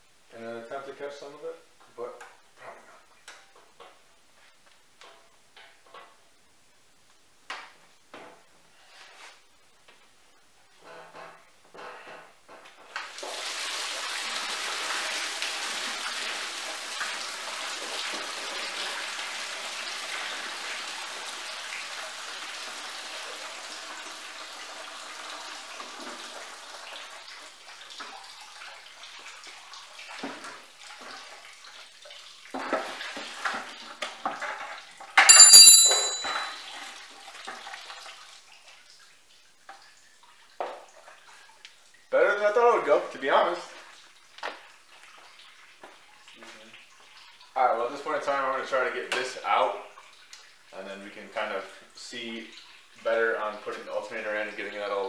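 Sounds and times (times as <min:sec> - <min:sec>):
coolant pouring into a plastic bucket: 0:13.0 - 0:35.2
ringing metal clank: 0:35.2 - 0:36.7.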